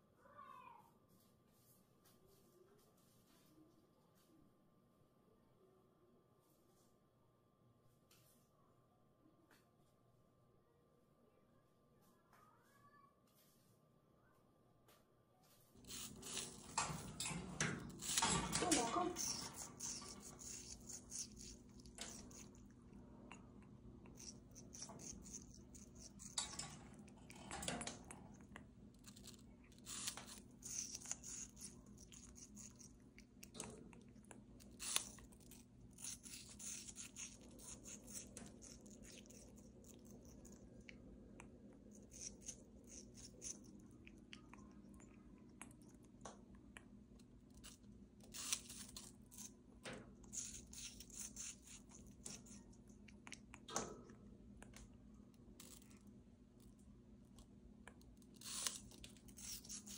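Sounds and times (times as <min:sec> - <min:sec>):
parrot crunching apple: 0:15.8 - 0:59.9.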